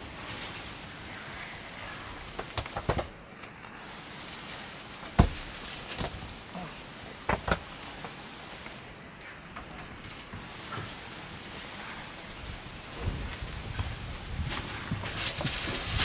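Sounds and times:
steady hiss: 0.0s - 16.0s
monkeys thumping on mat: 2.2s - 3.2s, 5.0s - 6.4s, 7.3s - 7.7s.

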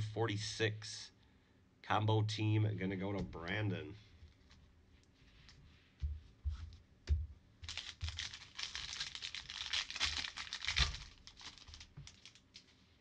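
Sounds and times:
foil crinkling and tearing: 7.6s - 12.8s.

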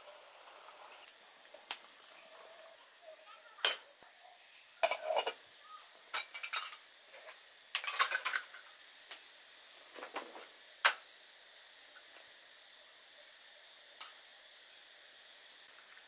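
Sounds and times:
metal coffee filter clinking: 4.8s - 5.4s.

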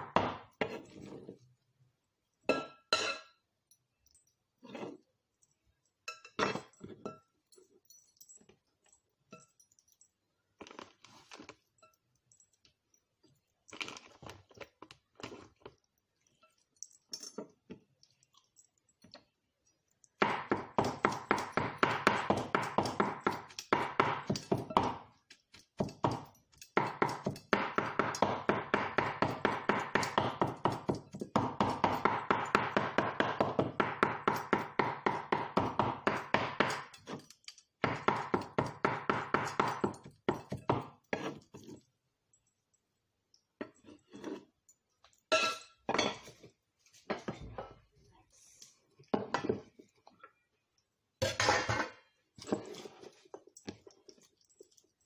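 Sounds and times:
knife chopping meat on wooden board: 20.2s - 25.0s, 26.8s - 36.9s, 37.8s - 40.9s.

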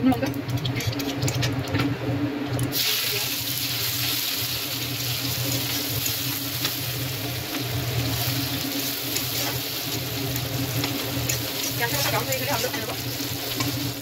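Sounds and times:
steady low hum: 0.0s - 14.0s
onions sizzling in hot oil: 2.6s - 14.0s
spatula stirring in wok: 3.8s - 14.0s.

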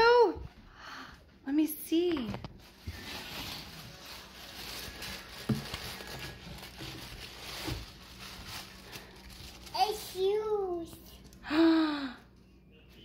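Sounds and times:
paper wrapping rustling: 1.9s - 11.3s.

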